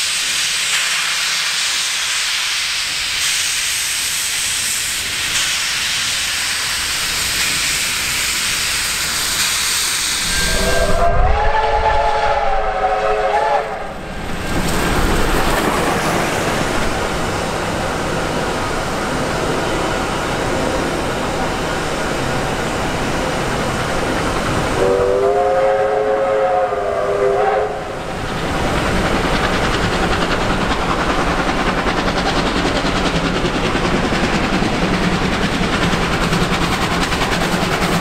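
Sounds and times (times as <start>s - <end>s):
steam venting hiss: 0.0s - 17.3s
steam locomotive whistle: 10.0s - 14.1s, 24.7s - 28.0s.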